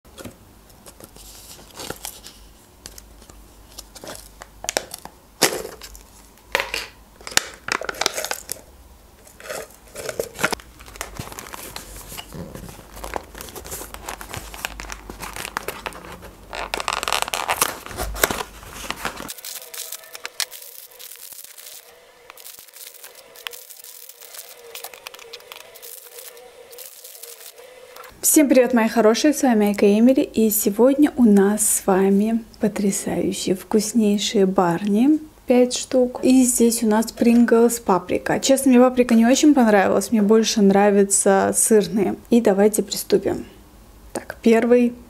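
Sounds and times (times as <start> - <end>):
plastic wrappers crinkling: 0.8 - 6.4, 7.2 - 8.6, 9.2 - 28.1
wrapper tearing open: 7.3 - 8.6, 9.2 - 28.1.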